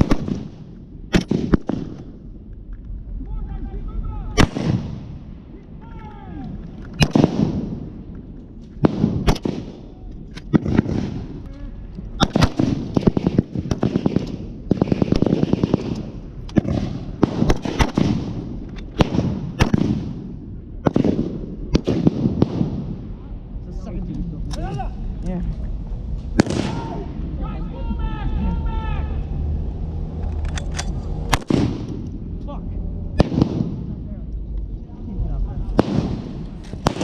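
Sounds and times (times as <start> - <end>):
gunshots firing blanks: 0.0 - 2.2, 8.8 - 9.9, 12.2 - 23.0, 31.3 - 32.0, 33.2 - 34.0, 35.7 - 37.0.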